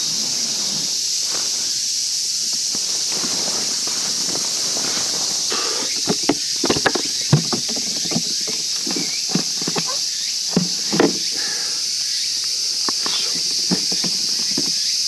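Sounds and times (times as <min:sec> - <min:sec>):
cicadas chorus: 0:00.0 - 0:15.0
cooler latches clicking: 0:05.9 - 0:11.3.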